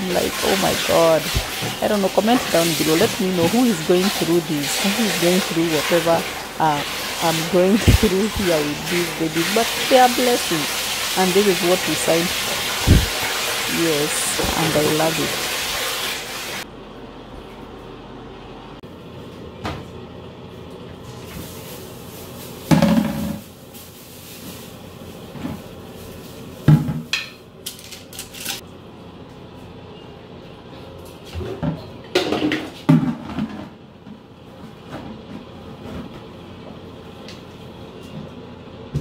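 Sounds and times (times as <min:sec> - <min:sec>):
crinkly plastic bag rustle: 0:21.0 - 0:26.6.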